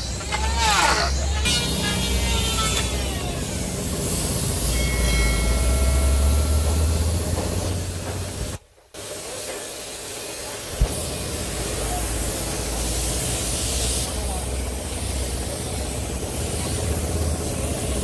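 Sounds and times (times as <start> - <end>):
paint spray gun hissing: 9.0 - 18.0.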